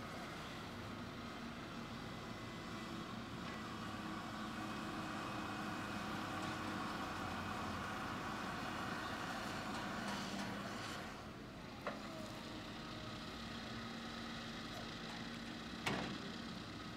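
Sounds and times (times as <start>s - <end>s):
excavator diesel engine running: 0.0s - 16.9s.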